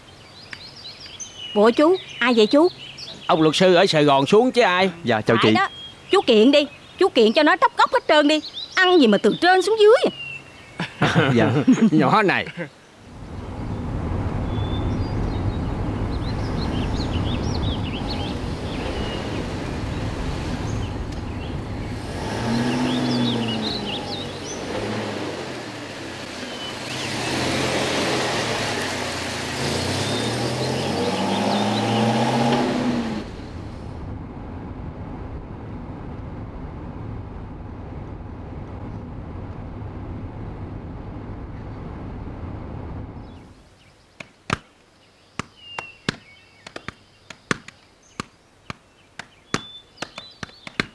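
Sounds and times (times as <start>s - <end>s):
car interior engine drone: 13.0s - 43.6s
car driving past: 13.1s - 43.5s
tennis balls being hit: 45.4s - 50.9s.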